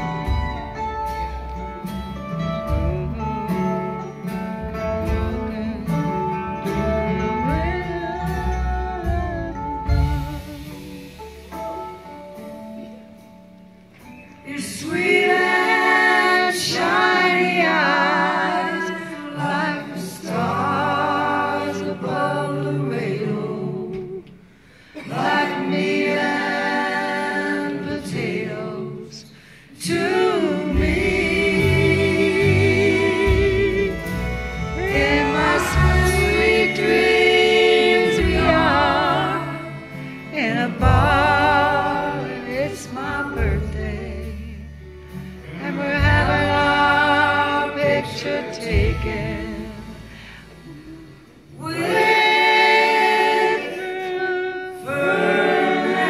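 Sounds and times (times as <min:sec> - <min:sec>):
live band playing: 0:00.0 - 0:56.0
voices singing together: 0:14.4 - 0:56.0.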